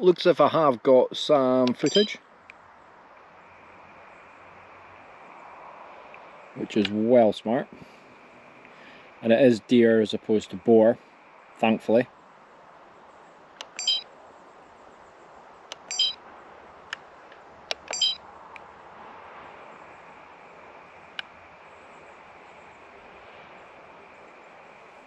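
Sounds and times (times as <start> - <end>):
steady background hiss: 0.0 - 25.0
keypad button clicks: 1.7 - 2.1, 13.6 - 14.0, 15.7 - 16.2, 17.7 - 18.2
short high electronic beep: 1.8 - 2.2, 13.8 - 14.0, 15.9 - 16.2, 17.9 - 18.2.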